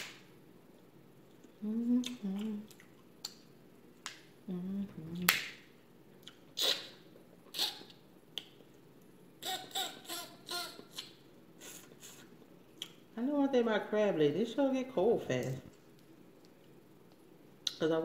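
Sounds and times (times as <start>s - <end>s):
person humming low: 1.6s - 2.7s, 4.4s - 5.3s.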